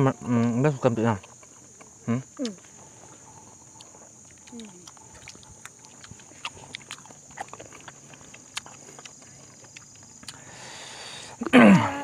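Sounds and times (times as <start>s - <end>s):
insect chirr: 0.0s - 12.0s
chewing and lip smacks: 1.2s - 10.6s.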